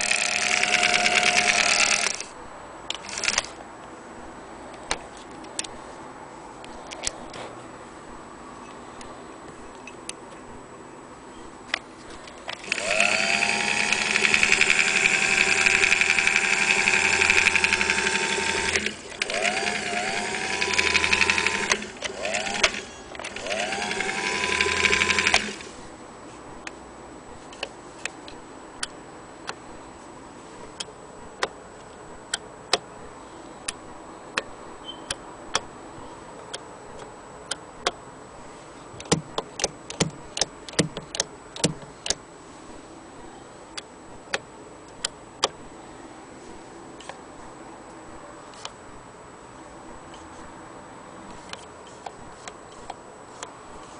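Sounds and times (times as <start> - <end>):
sewing machine dial clicks: 0.0 - 2.3, 2.9 - 3.5, 12.5 - 25.7
sewing machine motor whining: 0.0 - 2.3, 3.0 - 3.5, 12.6 - 25.8.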